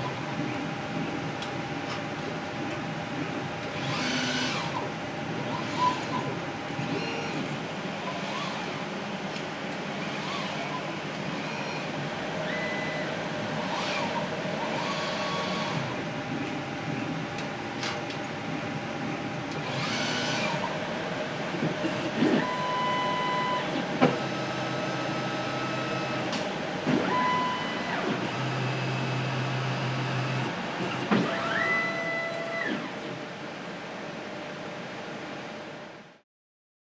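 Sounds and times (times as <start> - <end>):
machine hum: 0.0 - 36.1
motor whines rising in pitch: 21.9 - 26.3, 27.0 - 33.1.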